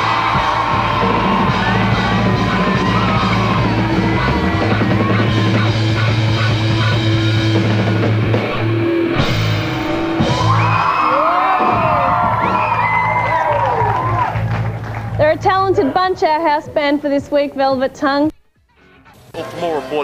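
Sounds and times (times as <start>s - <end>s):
live rock band playing: 0.0s - 13.2s
audience screaming and cheering: 0.0s - 15.3s.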